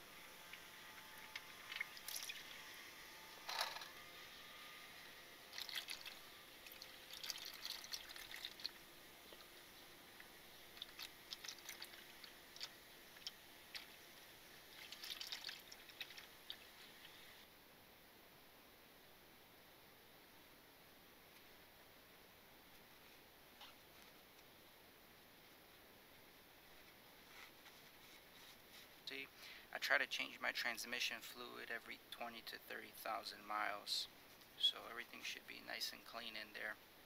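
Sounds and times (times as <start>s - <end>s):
fluid pouring into pan: 1.3s - 2.6s, 5.5s - 8.8s, 10.8s - 14.0s, 14.7s - 17.2s.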